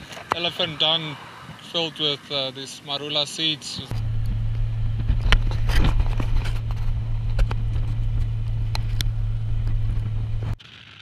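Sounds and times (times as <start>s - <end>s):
engine and road drone in car: 0.0s - 11.0s
knocks and rattles: 3.9s - 10.6s.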